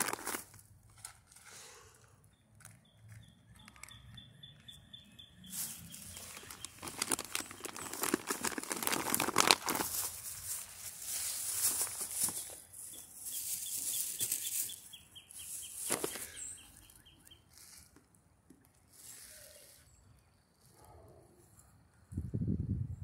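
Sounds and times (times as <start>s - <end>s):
crinkling and rustling: 0.0s - 1.5s, 5.5s - 16.4s.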